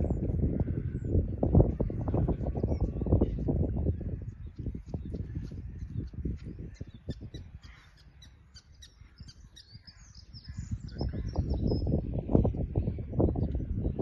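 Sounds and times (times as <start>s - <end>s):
birds chirping and calling: 0.0s - 14.0s.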